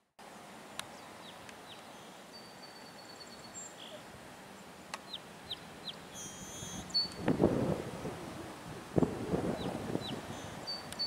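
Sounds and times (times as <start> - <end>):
outdoor background hiss: 0.0 - 11.0
small birds chirping: 0.7 - 7.5, 9.0 - 11.0
thin high whistle: 6.2 - 7.2.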